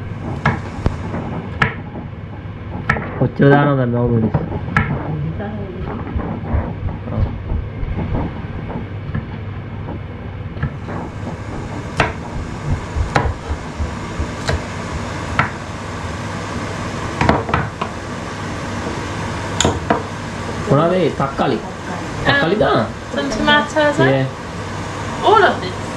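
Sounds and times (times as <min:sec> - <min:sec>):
low rumble: 0:04.0 - 0:08.8, 0:10.8 - 0:15.9
knife knocking on chopping board: 0:10.6 - 0:14.6.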